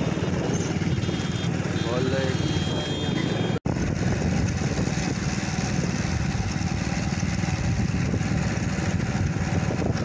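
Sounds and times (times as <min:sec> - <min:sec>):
motorcycle engine running: 0:00.0 - 0:10.0
wind buffeting microphone: 0:03.4 - 0:10.0.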